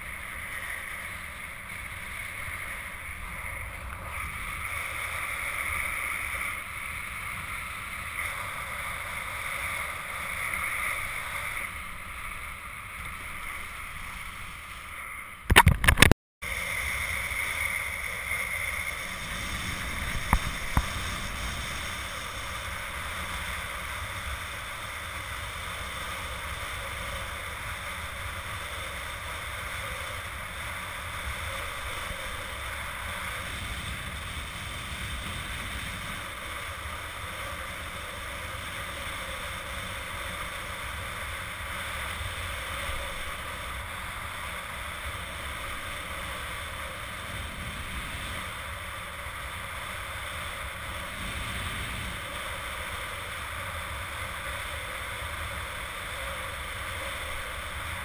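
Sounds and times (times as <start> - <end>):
wind and water rushing: 15.5 - 58.0.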